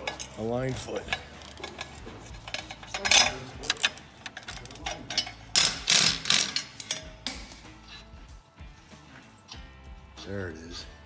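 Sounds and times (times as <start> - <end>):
wrench clinking and scraping metal: 0.0 - 8.2.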